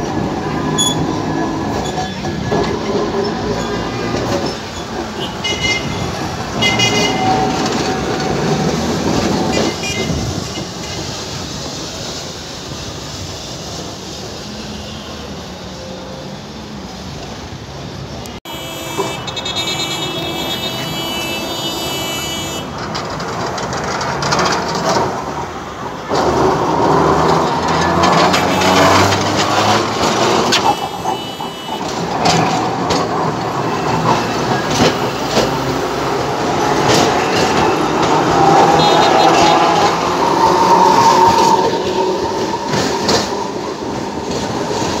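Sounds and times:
street traffic noise: 0:00.0 - 0:45.0
tram wheels rumbling on rails: 0:00.0 - 0:45.0
high-pitched squeal: 0:18.5 - 0:22.8, 0:33.6 - 0:44.4.

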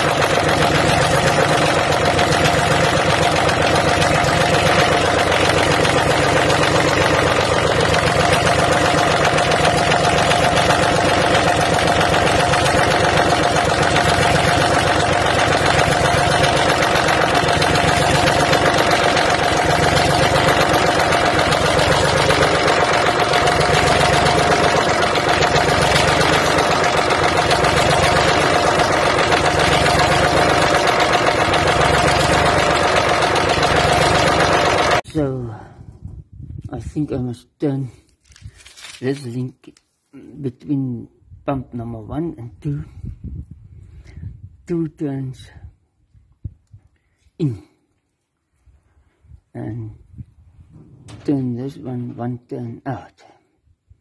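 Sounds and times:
diesel engine idling: 0:00.0 - 0:35.0.

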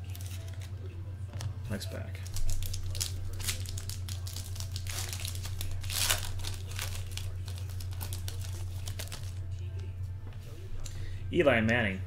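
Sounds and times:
wrapper tearing and crinkling: 0:00.0 - 0:00.7, 0:02.2 - 0:09.4
steady low hum: 0:00.0 - 0:12.0.

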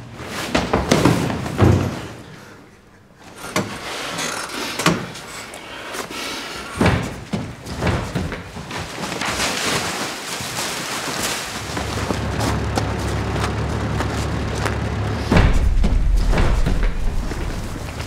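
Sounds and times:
thumps and scuffling: 0:00.2 - 0:02.3, 0:06.8 - 0:18.0
rustling: 0:07.0 - 0:18.0
diesel lorries idling: 0:11.6 - 0:18.0.

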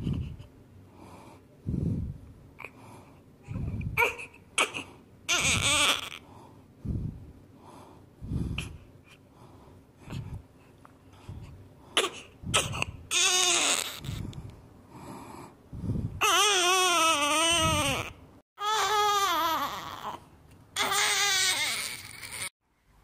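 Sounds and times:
newborn baby crying: 0:04.0 - 0:06.2, 0:12.0 - 0:14.2, 0:16.2 - 0:20.2, 0:20.8 - 0:22.5.

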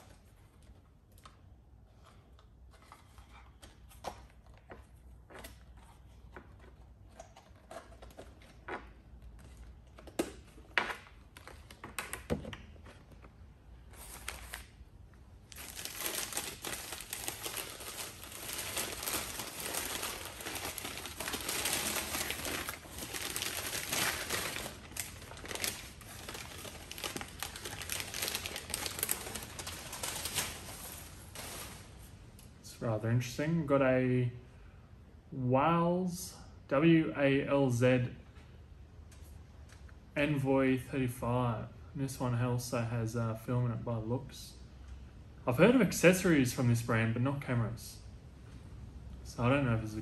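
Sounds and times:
paper wrapping crinkling: 0:15.5 - 0:32.0.

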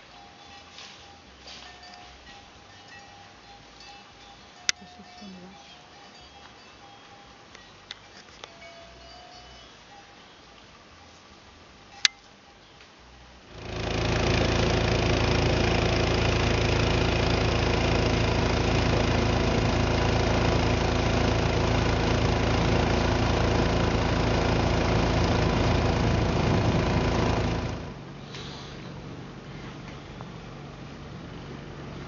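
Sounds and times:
boat engine running: 0:13.5 - 0:28.2.

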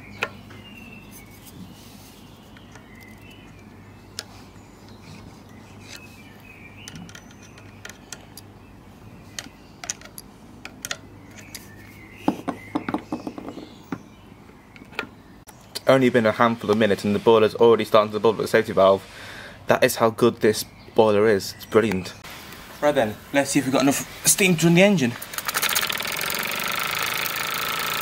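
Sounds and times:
faint bird chirps: 0:00.0 - 0:09.9.

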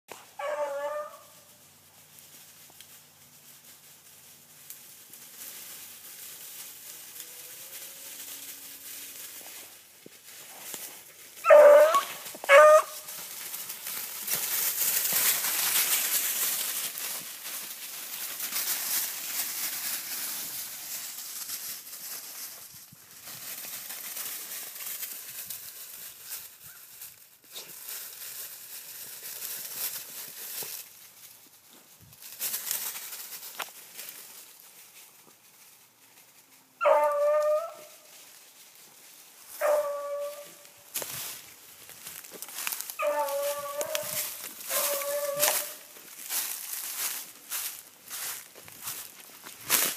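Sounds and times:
dry leaves and brush rustling: 0:00.1 - 0:49.9
dogs barking: 0:00.4 - 0:01.3, 0:11.4 - 0:13.1, 0:36.8 - 0:37.9, 0:39.6 - 0:40.6, 0:43.0 - 0:45.8.

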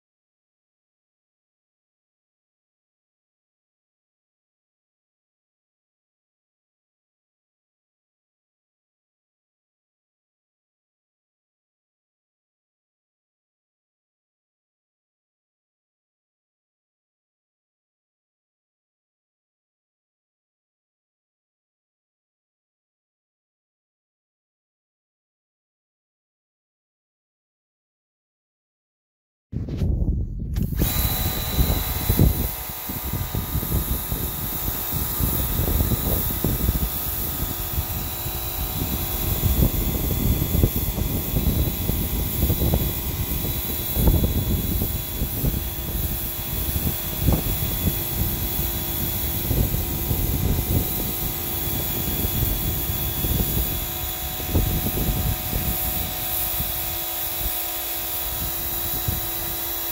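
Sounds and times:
pressure washer engine drone: 0:30.6 - 0:59.9
pressure washer spray hissing: 0:30.6 - 0:59.9.

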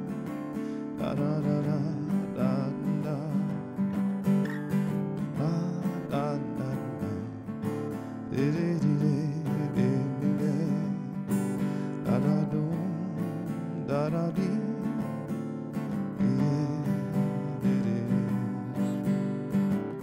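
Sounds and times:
acoustic guitar strumming: 0:00.0 - 0:20.0.

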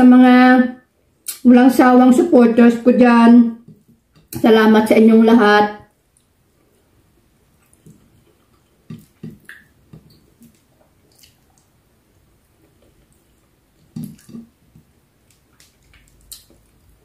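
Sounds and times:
wet chewing and lip smacks: 0:07.5 - 0:11.8, 0:12.4 - 0:17.0.

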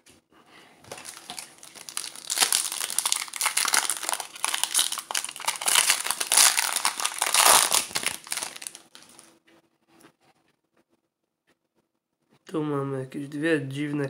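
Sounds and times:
foil wrapper crinkling: 0:00.8 - 0:09.3.

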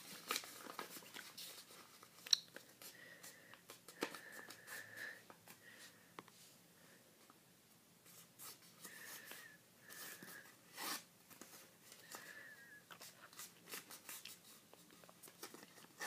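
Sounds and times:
paper rustling and crinkling: 0:00.0 - 0:04.9, 0:08.1 - 0:16.0.

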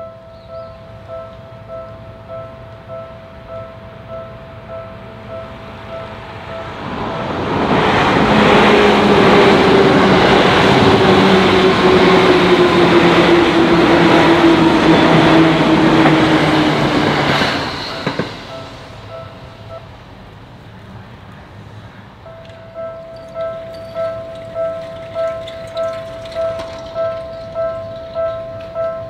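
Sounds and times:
crossing warning bell: 0:00.0 - 0:20.4, 0:22.2 - 0:29.0
train wheels on rails: 0:04.7 - 0:29.0
train motor whine: 0:05.1 - 0:19.9.

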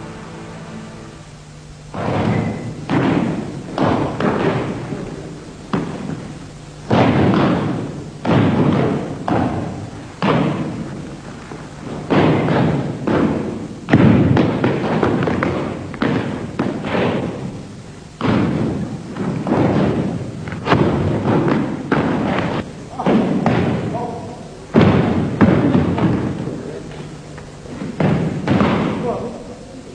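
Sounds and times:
heavy thuds of stamping on floor: 0:01.9 - 0:05.0, 0:05.6 - 0:11.2, 0:11.8 - 0:17.6, 0:18.2 - 0:24.0, 0:24.7 - 0:26.8, 0:27.7 - 0:29.2.

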